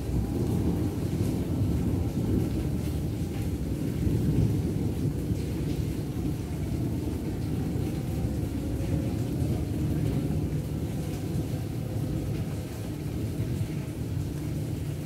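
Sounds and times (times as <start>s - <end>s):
thunder rumbling: 0.0s - 2.9s
rain hiss: 0.0s - 15.0s.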